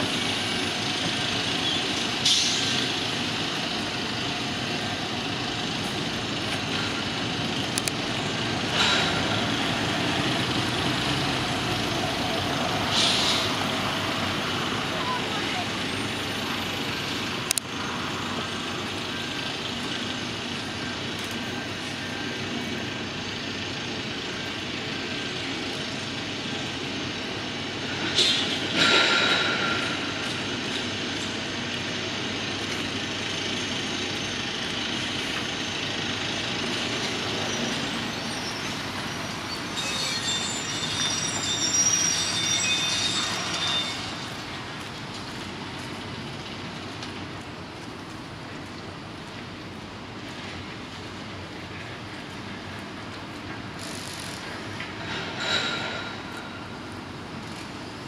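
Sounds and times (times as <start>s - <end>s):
city traffic: 0.0s - 58.0s
metallic squealing and screeching: 37.3s - 44.7s.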